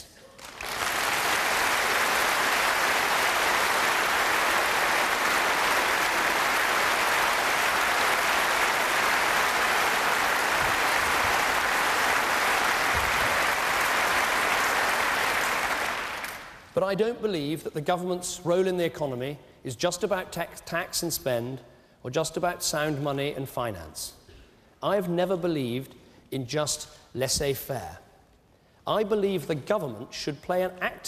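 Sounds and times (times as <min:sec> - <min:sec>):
large audience applauding: 0:00.3 - 0:16.7.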